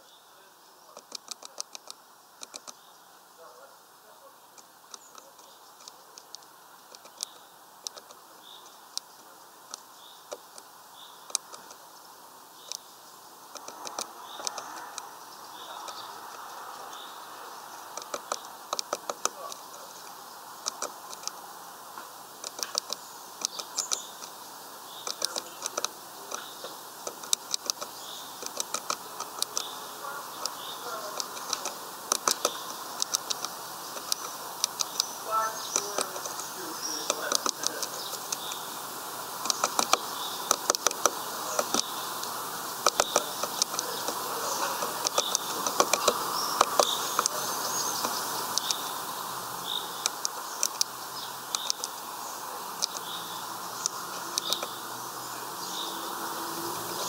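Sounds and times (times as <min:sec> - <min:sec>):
bird bill tapping on wood: 0:00.9 - 0:02.8, 0:04.6 - 0:09.1, 0:09.7 - 0:11.8, 0:13.5 - 0:16.5, 0:17.9 - 0:24.4, 0:25.0 - 0:38.7, 0:39.3 - 0:48.9, 0:50.0 - 0:52.0, 0:53.8 - 0:54.8.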